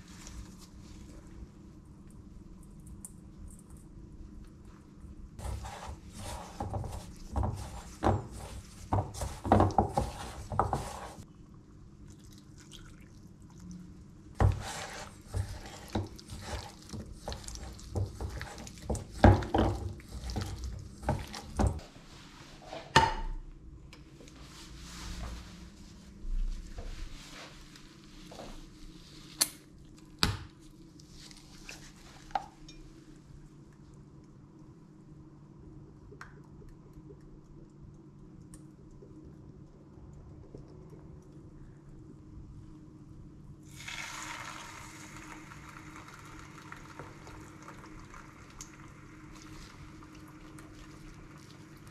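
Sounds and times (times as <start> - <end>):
hands squishing chicken in flour: 14.4 - 21.6.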